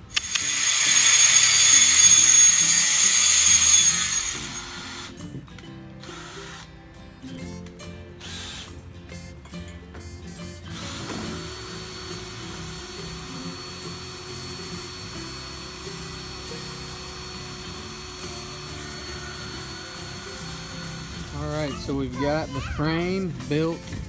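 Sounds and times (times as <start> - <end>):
power tool running: 0.0 - 5.3, 6.0 - 6.7, 8.2 - 8.8, 10.7 - 22.5
background music: 2.8 - 24.0.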